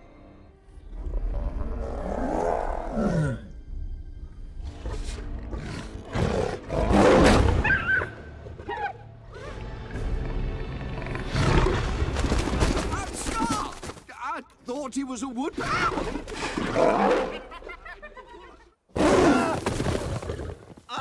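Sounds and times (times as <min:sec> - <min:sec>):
lions growling and roaring: 0:00.9 - 0:03.5, 0:04.6 - 0:08.1, 0:10.2 - 0:12.2, 0:15.8 - 0:17.6.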